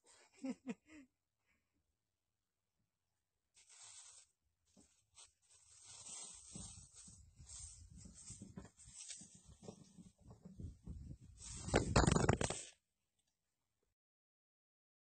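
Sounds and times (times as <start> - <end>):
plastic bag crinkling: 3.6 - 4.2, 5.2 - 7.8.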